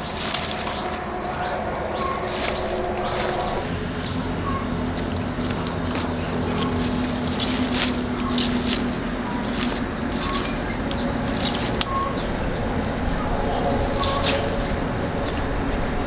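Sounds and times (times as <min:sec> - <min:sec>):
stems rustling and knocking: 0:00.0 - 0:12.3
steady high-pitched whine: 0:00.0 - 0:16.0.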